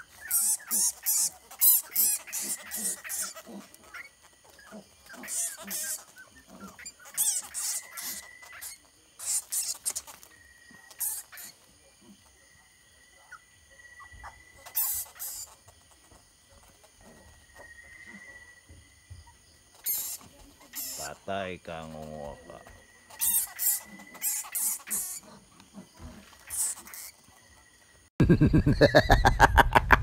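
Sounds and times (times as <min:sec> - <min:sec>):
dog and bat scuffling: 0:00.0 - 0:12.4, 0:21.8 - 0:27.6.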